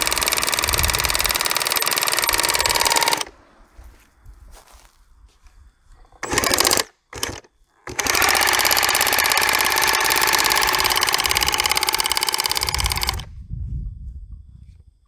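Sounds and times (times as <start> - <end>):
power drill boring into rock: 0.0 - 3.3, 6.2 - 13.3.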